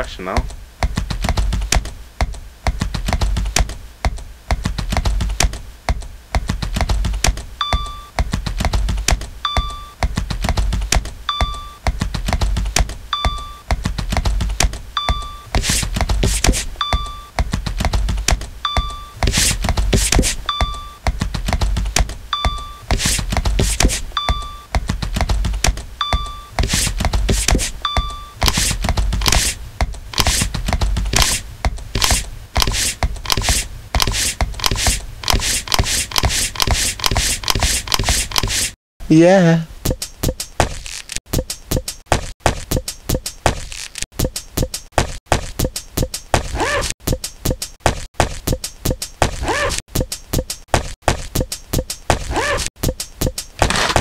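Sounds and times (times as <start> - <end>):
plastic rasping over fabric: 15.6 - 16.7, 19.2 - 20.4, 22.9 - 24.0, 26.6 - 27.8, 28.4 - 38.8.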